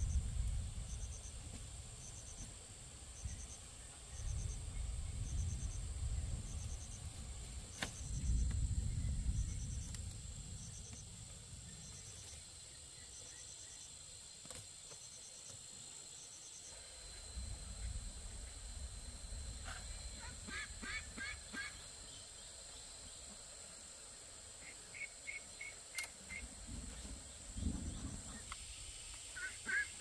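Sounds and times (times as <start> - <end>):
crickets chirping: 0.0 - 30.0
high insect drone: 0.0 - 30.0
low rumble: 8.0 - 11.8, 17.1 - 20.8.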